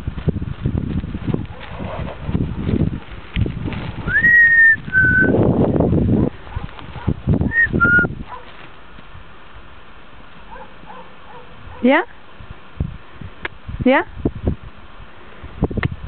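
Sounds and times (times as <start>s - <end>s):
horse hooves trotting on grass: 0.0s - 13.7s
person whistling two notes: 4.1s - 5.4s, 7.5s - 8.1s.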